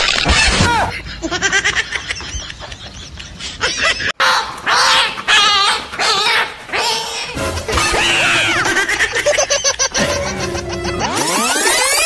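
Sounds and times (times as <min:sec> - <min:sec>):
high yelping and whining cries: 0:04.2 - 0:12.0.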